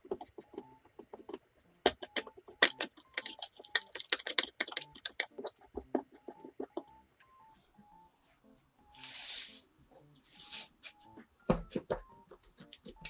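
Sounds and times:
utensils clicking and tapping: 0:00.0 - 0:07.0.

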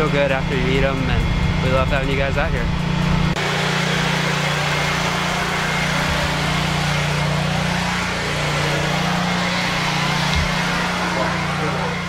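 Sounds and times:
mechanical motor drone: 0:00.0 - 0:12.0.

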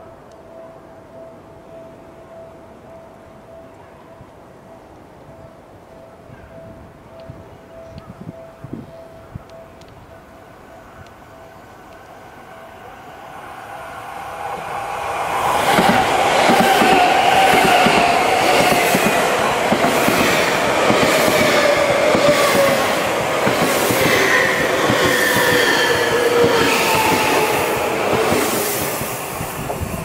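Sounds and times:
electric train passing: 0:00.0 - 0:30.0.

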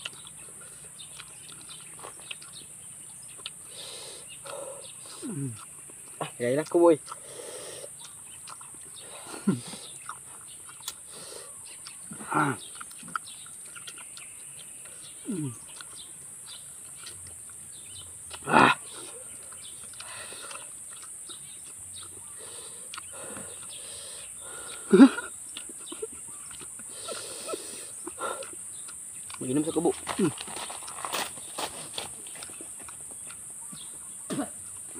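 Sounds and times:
faint eating sounds: 0:00.0 - 0:34.9
people grunting: 0:04.5 - 0:05.6, 0:09.2 - 0:09.7, 0:12.1 - 0:12.6, 0:15.2 - 0:15.6, 0:18.4 - 0:19.2, 0:24.8 - 0:25.3.

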